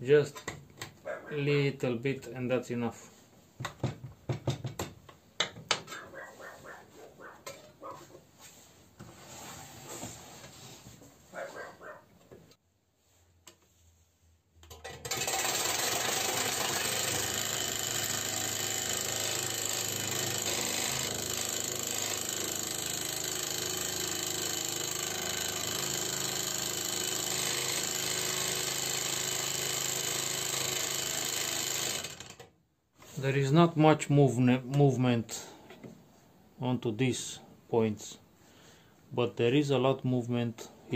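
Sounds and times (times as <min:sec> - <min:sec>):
scroll saw buzzing: 0:15.0 - 0:32.5.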